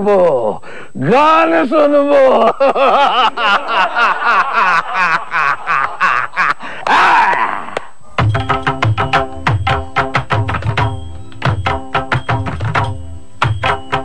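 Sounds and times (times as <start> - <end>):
man laughing theatrically: 2.2 - 7.3
music with tabla drumming: 8.2 - 14.0.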